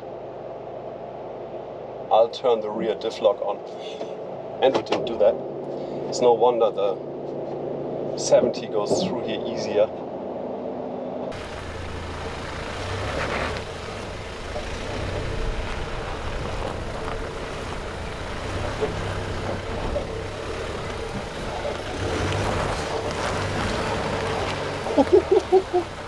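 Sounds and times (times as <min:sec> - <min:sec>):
tyres grinding over dirt and stone: 0:11.3 - 0:26.0
van engine at low revs: 0:11.3 - 0:26.0.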